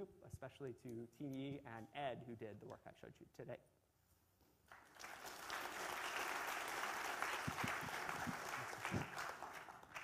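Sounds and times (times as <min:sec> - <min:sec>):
audience applauding: 0:04.7 - 0:10.0.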